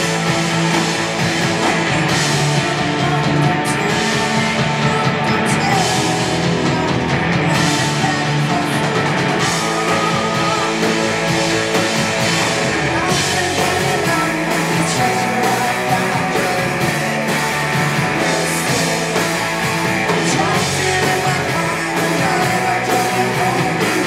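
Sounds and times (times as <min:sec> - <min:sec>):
electric guitar: 0:00.0 - 0:24.0
live punk rock band: 0:00.0 - 0:24.0
person singing: 0:00.0 - 0:24.0.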